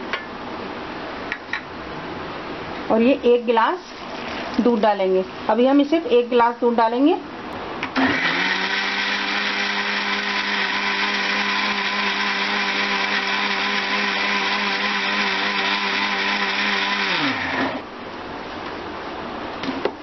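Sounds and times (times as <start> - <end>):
mixer grinder motor running: 8.0 - 17.9.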